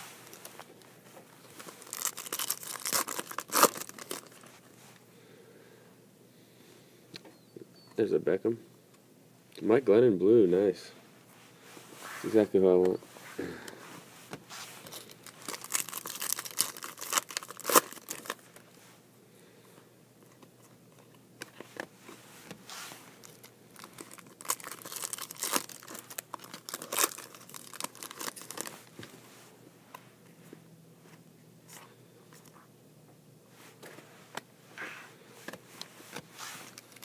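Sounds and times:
foil wrappers crinkling and tearing: 1.6 - 4.4, 14.8 - 18.5, 23.2 - 28.9, 36.6 - 37.0.

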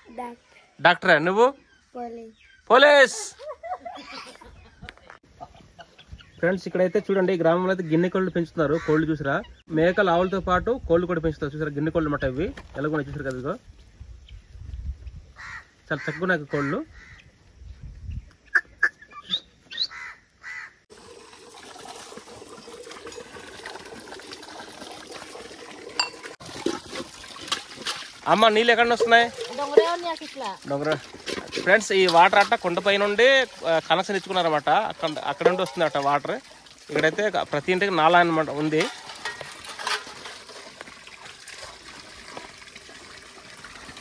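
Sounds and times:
water running from tap: 20.9 - 44.0
metal tumblers clinking: 21.8 - 24.7, 25.9 - 42.0
metallic clink of pot: 26.0 - 26.4, 35.0 - 36.3, 38.6 - 40.4.

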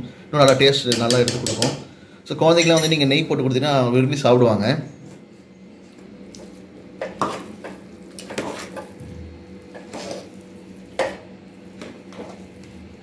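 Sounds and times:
steady low hum: 0.0 - 13.0
metal spoon scraping a pot: 7.1 - 9.0, 9.7 - 11.2.

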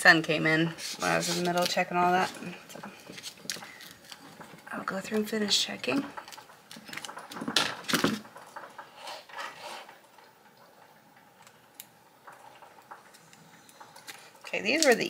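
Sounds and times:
transfer sheet scraping and rustling: 0.7 - 5.2, 5.8 - 10.0.

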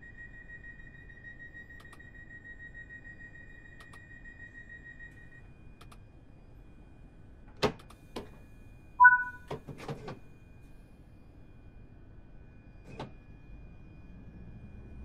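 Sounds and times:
steady high tone: 9.0 - 9.4
two-note door beep: 9.0 - 9.4.

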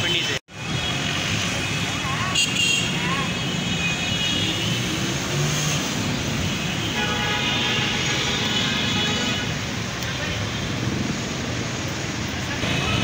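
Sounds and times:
traffic on wet road: 0.0 - 13.0
vehicle horns: 2.2 - 5.4, 6.4 - 10.8.

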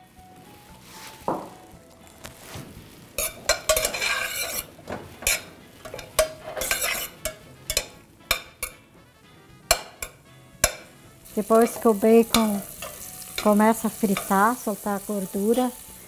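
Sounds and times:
bacon frying: 0.1 - 16.0
spoon scraping metal pot: 3.2 - 8.8, 11.5 - 14.4.

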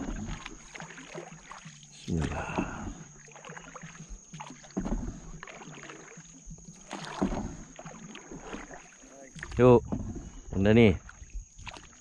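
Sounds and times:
paddle strokes through water: 0.0 - 12.0.

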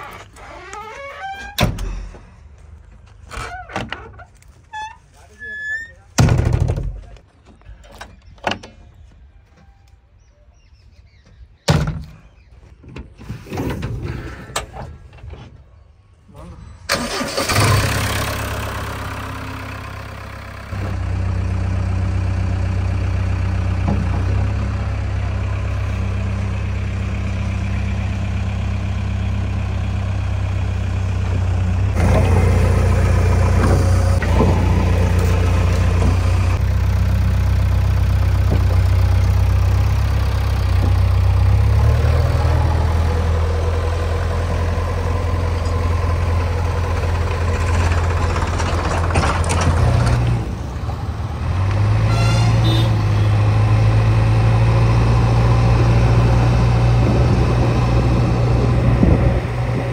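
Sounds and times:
heavy diesel engine running: 16.9 - 59.9.

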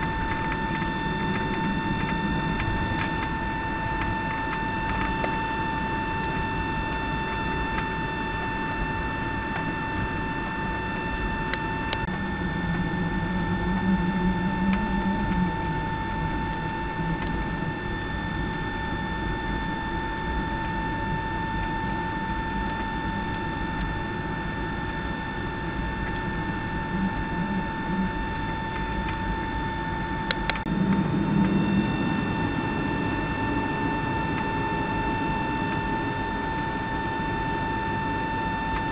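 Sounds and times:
jet engine whine: 0.0 - 38.9
aircraft cabin rumble: 25.8 - 35.8.

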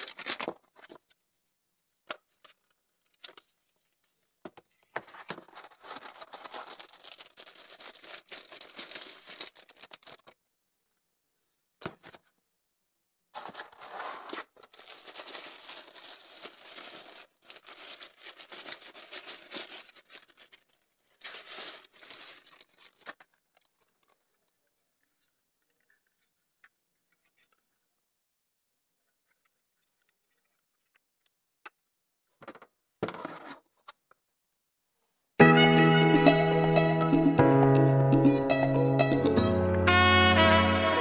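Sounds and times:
packaging rustling and crinkling: 0.0 - 1.3, 2.2 - 10.4, 13.4 - 28.0.

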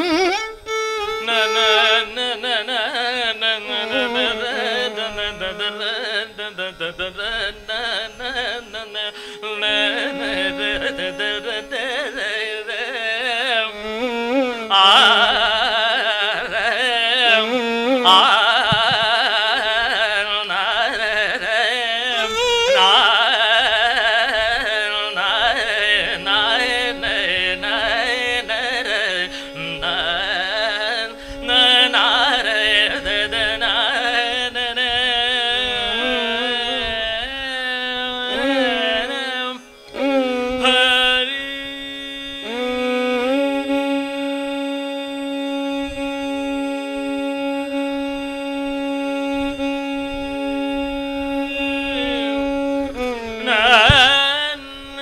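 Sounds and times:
violin melody: 0.0 - 20.1, 22.0 - 36.9, 38.0 - 55.0
ornamented singing voice: 0.0 - 44.6, 49.3 - 55.0
mridanga drum strokes: 18.6 - 19.2, 53.7 - 54.4.

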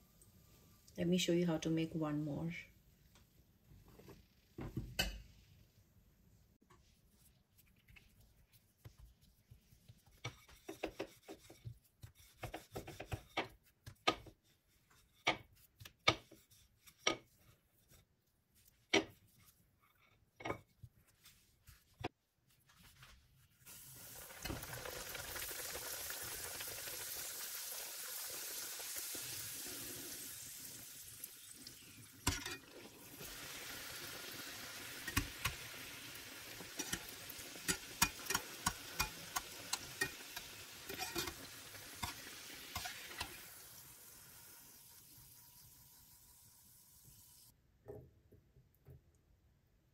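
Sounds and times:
frying sizzle in hot oil: 8.8 - 18.1, 23.6 - 47.6
spoon clinking against metal pan: 37.7 - 41.4.

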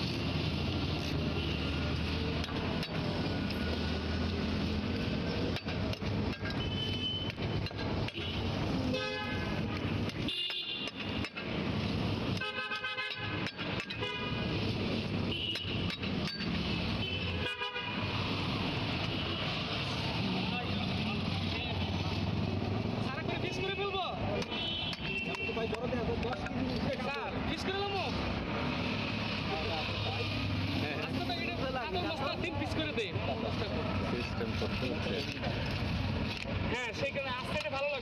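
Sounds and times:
traffic engines rumbling: 0.0 - 38.0
vehicle horns honking: 6.5 - 7.4, 8.1 - 11.2, 12.3 - 15.9, 16.8 - 18.3, 24.4 - 25.8.

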